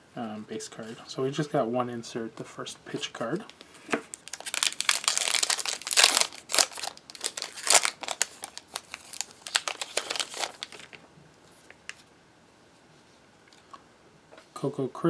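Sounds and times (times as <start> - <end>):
plastic wrapper tearing and crinkling: 3.4 - 11.0.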